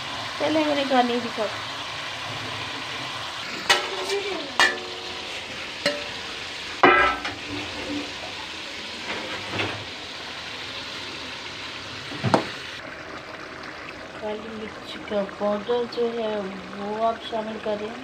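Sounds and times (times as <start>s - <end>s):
chicken sizzling in a pan: 0.0s - 18.0s
metal bowl and spoon clanking: 3.6s - 6.2s, 6.8s - 8.0s.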